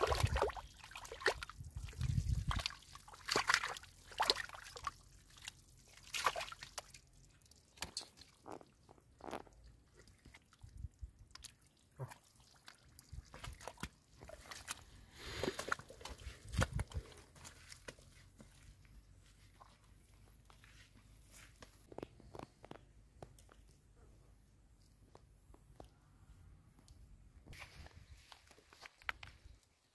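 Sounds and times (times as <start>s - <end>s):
hands splashing in muddy water: 0.0s - 8.3s, 9.9s - 18.0s
feet squelching through mud: 0.0s - 10.6s, 11.4s - 22.4s.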